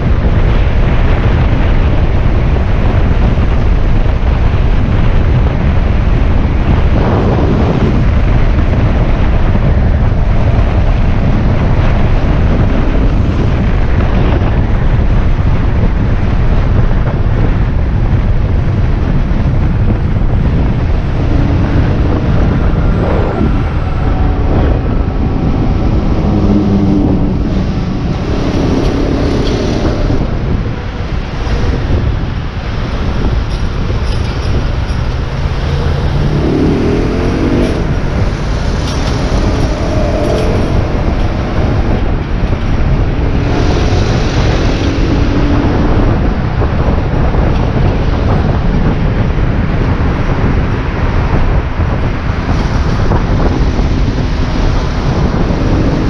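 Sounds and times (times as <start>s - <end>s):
wind buffeting microphone: 0.0s - 56.0s
motorcycle engine: 18.8s - 49.0s
nearby traffic: 20.6s - 47.1s.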